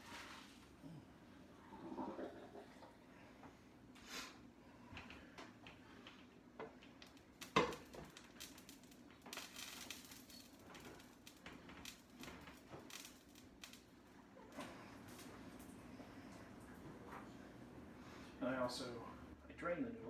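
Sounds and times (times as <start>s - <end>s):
pot scraping on stove: 1.6s - 2.9s.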